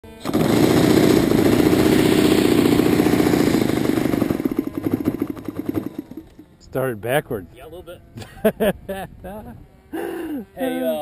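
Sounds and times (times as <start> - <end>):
model airplane engine running: 0.0 - 8.3, 9.4 - 11.0.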